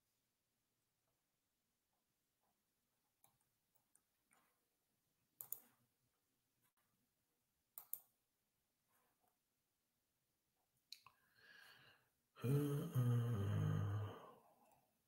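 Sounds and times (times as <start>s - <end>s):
computer mouse clicks: 5.4s - 5.8s, 7.7s - 8.2s.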